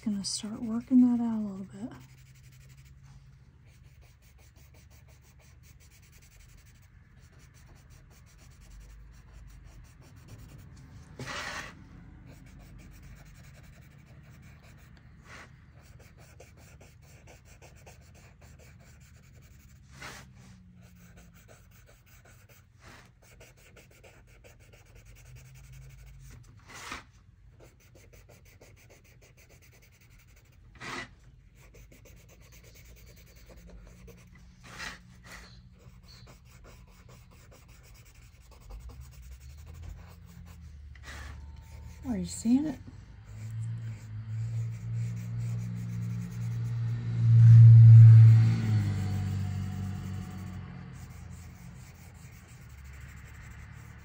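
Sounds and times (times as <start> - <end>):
scratchy rubbing on paper: 0.0 - 47.0, 49.0 - 54.0
louder scuffs on paper: 11.0 - 11.8.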